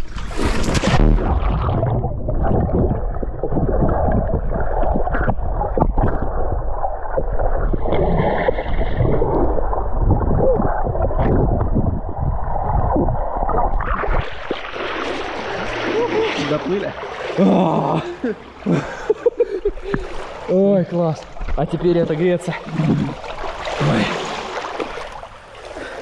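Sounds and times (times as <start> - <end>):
dull underwater knocks: 0.6 - 6.5, 19.7 - 20.3
muffled underwater bubbling: 0.7 - 16.4, 21.3 - 24.3.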